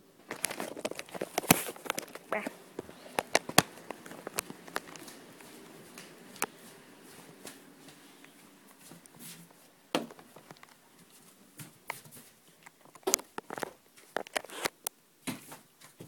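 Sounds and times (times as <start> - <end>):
handling clicks and knocks: 0.2 - 6.7.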